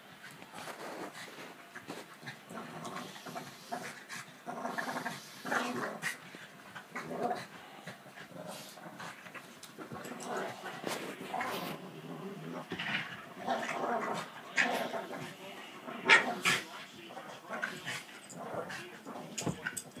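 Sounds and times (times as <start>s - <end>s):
scuffling paws and mouths: 0.1s - 20.0s
dogs growling: 0.6s - 20.0s.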